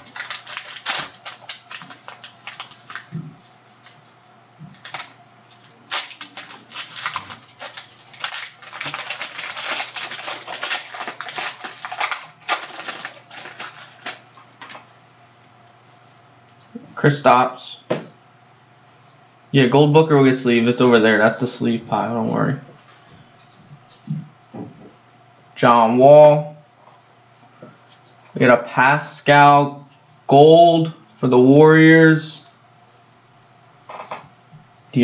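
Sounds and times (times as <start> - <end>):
cards handled in plastic sleeves: 0.0 - 14.9
foil wrapper crinkling: 0.0 - 14.9.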